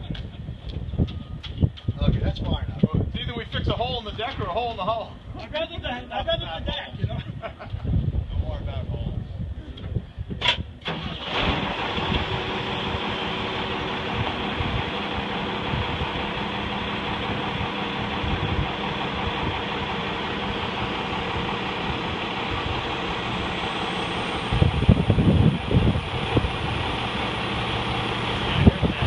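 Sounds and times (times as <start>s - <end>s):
engine droning steadily: 10.7s - 29.0s.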